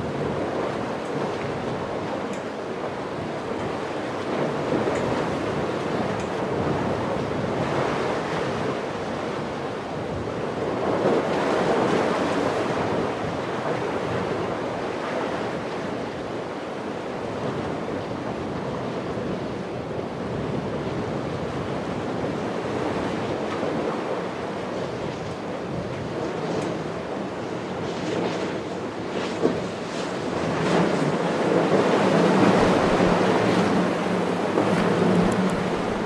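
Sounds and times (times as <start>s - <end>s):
wind buffeting microphone: 17.4s - 36.0s
ocean surf breaking: 21.8s - 36.0s.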